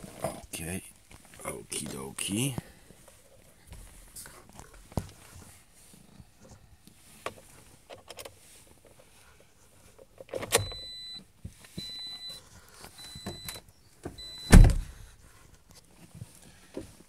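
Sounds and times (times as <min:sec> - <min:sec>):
car warning chime beeping: 0:10.6 - 0:12.4, 0:13.0 - 0:14.8
car door shutting: 0:14.1 - 0:15.0.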